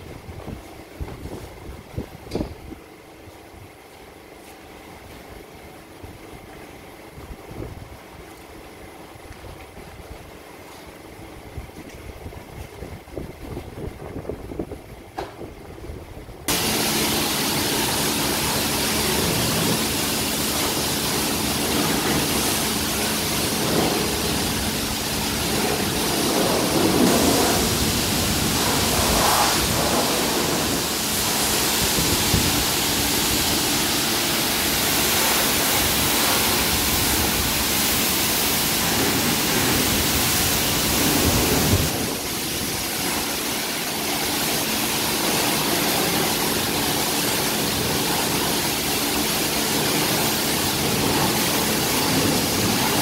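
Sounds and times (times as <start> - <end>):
pressure washer spraying water: 16.5 - 53.0.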